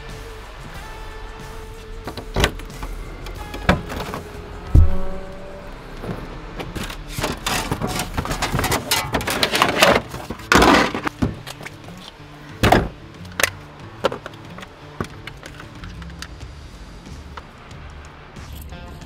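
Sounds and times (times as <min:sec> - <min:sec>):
background music: 0:00.0 - 0:19.0
clattering and scraping in car boot: 0:02.1 - 0:16.2.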